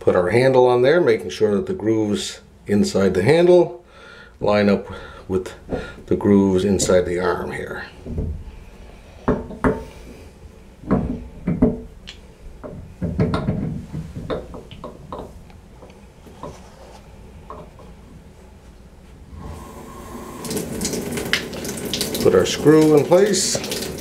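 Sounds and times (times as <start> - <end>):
water running from tub spout: 19.5 - 24.0.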